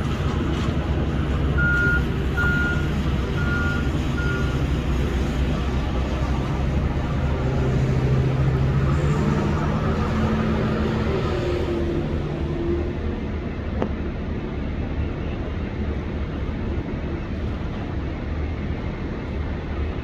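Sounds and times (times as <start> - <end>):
heavy machinery engine: 0.0 - 20.0
reversing alarm beeping: 1.6 - 4.7.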